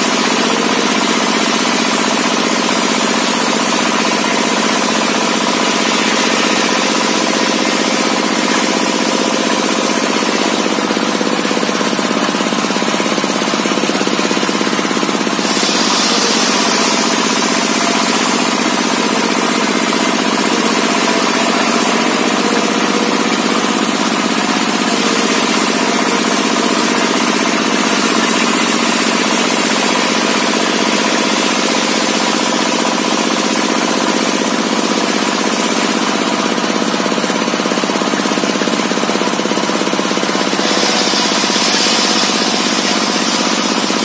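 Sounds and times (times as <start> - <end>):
circular saw ripping through log: 39.9 - 44.0.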